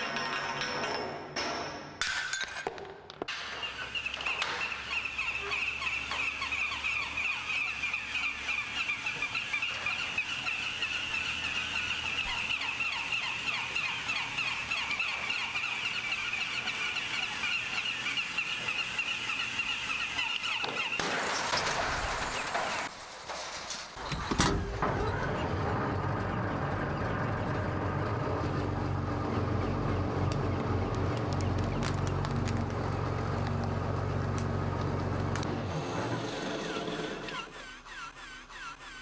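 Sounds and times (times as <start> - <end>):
toy dogs yapping and whirring: 2.8 - 22.9, 36.2 - 39.0.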